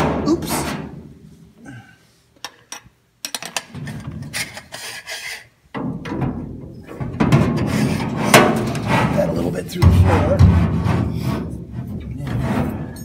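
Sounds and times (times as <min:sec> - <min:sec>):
metal scraping and rubbing: 0:03.5 - 0:13.0.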